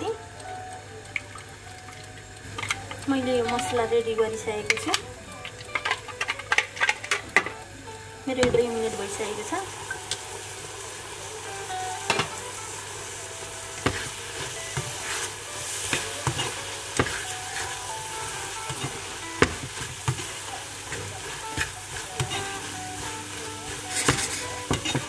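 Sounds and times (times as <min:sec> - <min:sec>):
vegetables sizzling in a frying pan: 0:00.0 - 0:25.0
spatula scraping and knocking pan: 0:04.6 - 0:07.6, 0:13.8 - 0:25.0.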